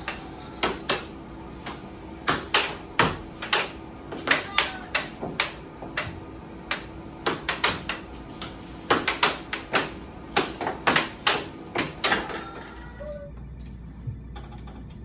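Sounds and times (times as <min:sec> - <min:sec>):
air hockey puck clacking: 0:00.0 - 0:12.6.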